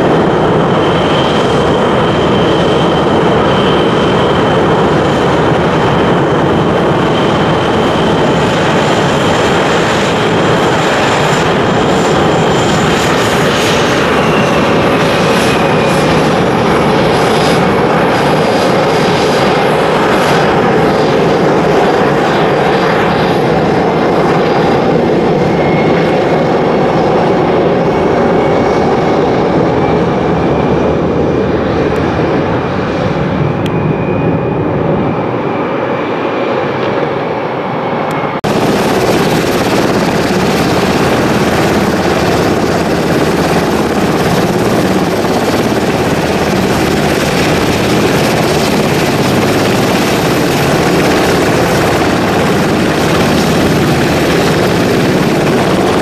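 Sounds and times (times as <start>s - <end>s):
helicopter engines whining: 0.0s - 56.0s
helicopter rotor rush: 0.0s - 56.0s.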